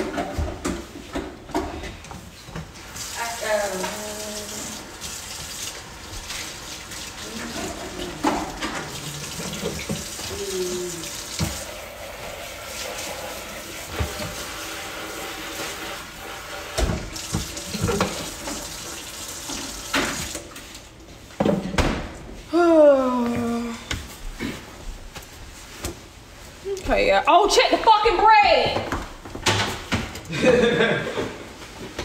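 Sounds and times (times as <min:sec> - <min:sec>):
hands washing under water: 0:02.5 - 0:21.0
tap running into a sink: 0:07.6 - 0:10.3, 0:11.1 - 0:12.3, 0:13.7 - 0:14.7, 0:16.7 - 0:20.5.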